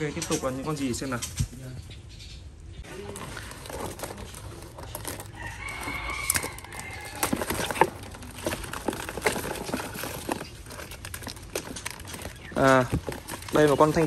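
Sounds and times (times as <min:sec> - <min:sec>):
rooster crowing: 0:05.2 - 0:08.0.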